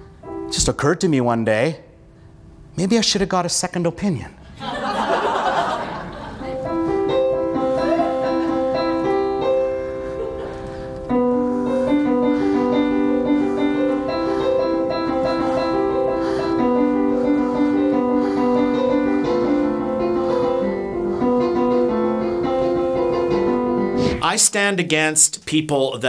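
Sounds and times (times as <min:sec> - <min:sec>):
electronic keyboard piano melody: 0:00.0 - 0:01.4, 0:06.5 - 0:24.2.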